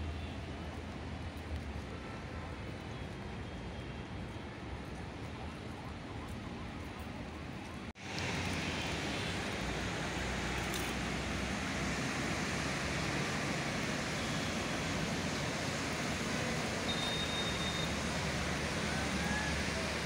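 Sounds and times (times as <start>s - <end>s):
heavy rain hissing: 8.0s - 20.0s.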